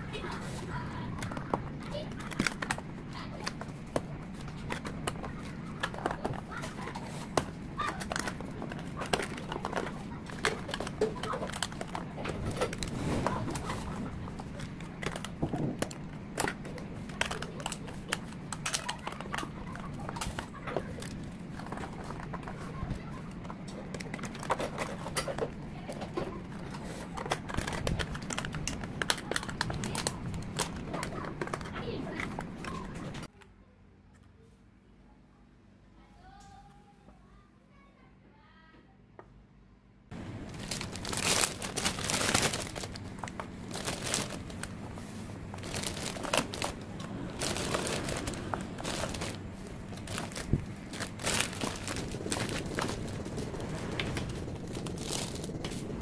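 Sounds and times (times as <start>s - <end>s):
plastic lids clicking and crackling: 1.2s - 22.6s, 23.3s - 33.2s, 40.2s - 55.8s
steady low hum: 39.4s - 56.0s.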